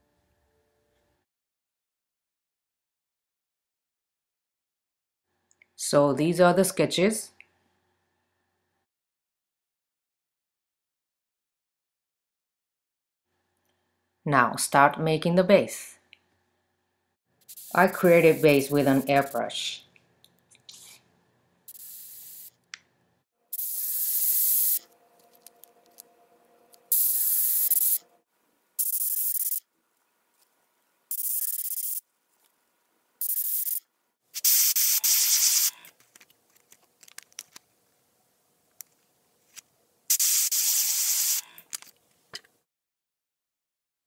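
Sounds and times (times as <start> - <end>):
airbrush hissing: 17.4 - 19.4, 21.7 - 22.6, 23.5 - 24.9, 26.9 - 28.0, 28.8 - 29.6, 31.1 - 32.0, 33.2 - 33.8, 34.4 - 35.9, 40.1 - 41.5.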